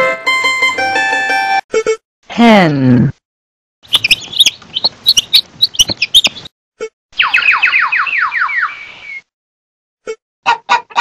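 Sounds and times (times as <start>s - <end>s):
chickens chirping and squawking: 3.8s - 6.5s, 10.5s - 11.0s
chicken falling peeps: 3.9s - 6.5s.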